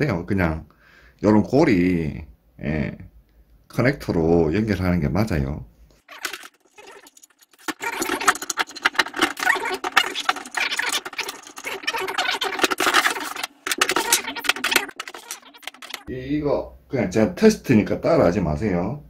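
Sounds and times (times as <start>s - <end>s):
handling rustling and scratching: 6.0s - 16.1s.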